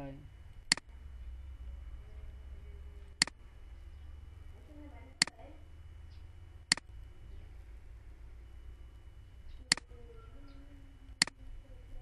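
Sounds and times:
steady low hum: 0.0s - 12.0s
computer mouse clicking: 0.7s - 0.9s.

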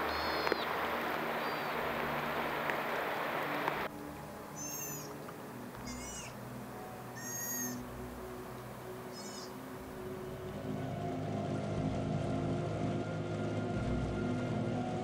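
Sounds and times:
loud steady hiss: 0.0s - 11.4s
sea otters squealing: 4.6s - 5.2s, 5.8s - 6.4s, 7.1s - 7.8s, 9.1s - 9.6s.

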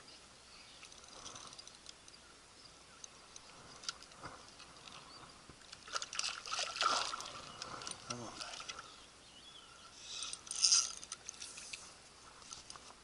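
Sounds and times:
water splashing and trickling: 3.3s - 9.0s
clicks and splashes: 5.6s - 8.8s.

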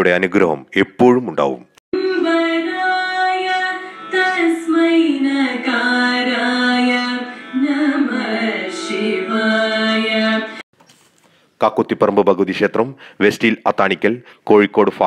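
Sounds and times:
person singing long sliding notes: 2.0s - 10.6s.

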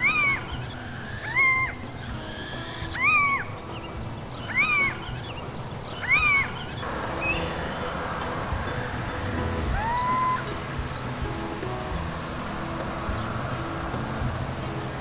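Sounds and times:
owl calling: 0.0s - 11.1s.

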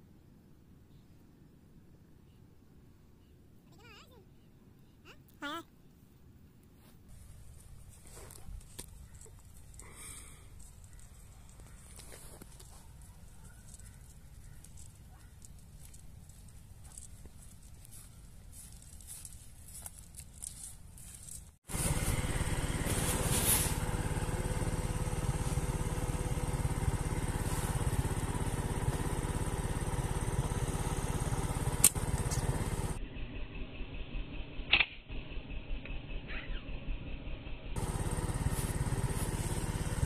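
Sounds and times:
engine running: 7.1s - 20.2s, 21.6s - 40.0s
sharp snap: 31.7s - 32.5s, 34.7s - 35.1s.

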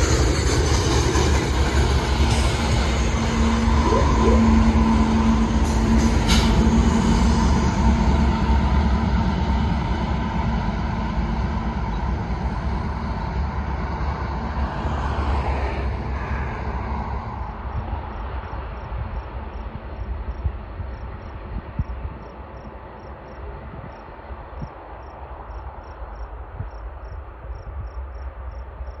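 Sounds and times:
diesel locomotive engine drone: 0.0s - 29.0s
train wheels rumbling on rail: 0.0s - 29.0s.

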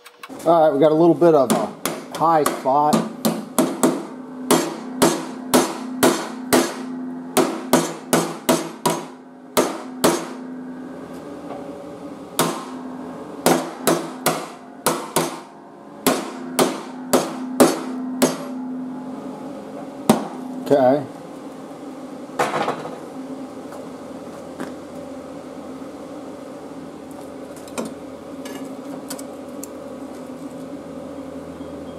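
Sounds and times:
hammer striking sheet steel: 1.5s - 10.4s, 12.4s - 12.8s, 13.4s - 18.6s.

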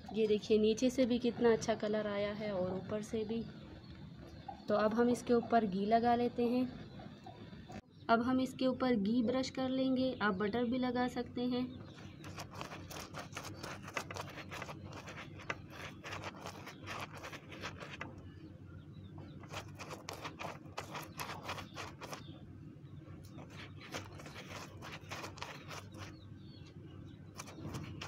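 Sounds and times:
pastry brush stroking bread: 12.1s - 18.1s, 19.3s - 22.3s, 23.3s - 26.2s, 27.4s - 28.0s.

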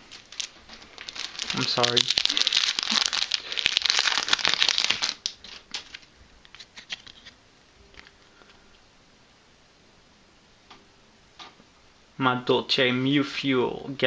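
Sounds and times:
foil wrapper crinkling: 0.0s - 7.3s
cards rustling and clicking: 0.1s - 7.4s.

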